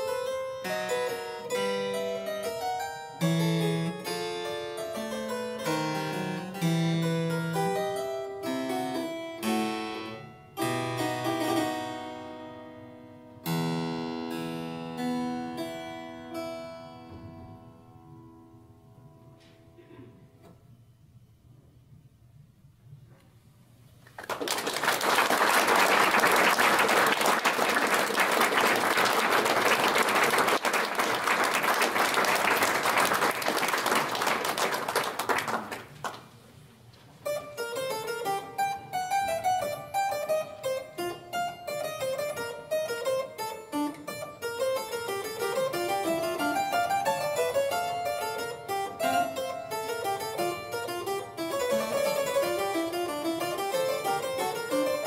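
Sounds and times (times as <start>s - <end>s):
harpsichord playing: 0.0s - 17.6s, 37.2s - 55.0s
audience applauding: 24.0s - 36.3s.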